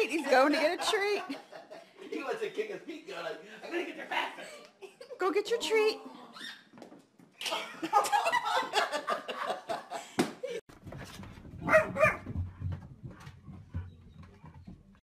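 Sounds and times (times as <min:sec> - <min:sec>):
dog barking: 0:11.6 - 0:12.3.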